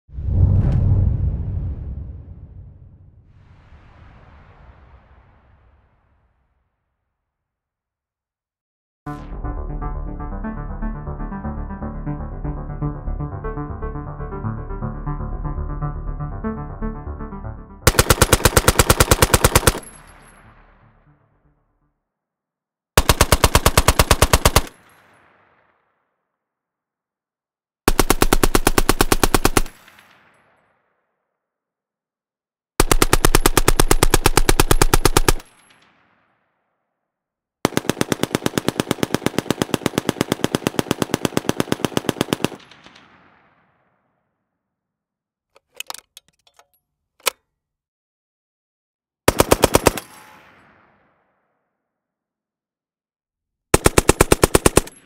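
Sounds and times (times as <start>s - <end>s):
machine gun automatic fire: 17.9s - 20.3s, 23.0s - 25.0s, 27.9s - 30.0s, 32.8s - 35.6s, 37.6s - 43.0s, 49.3s - 50.4s, 53.7s - 55.0s.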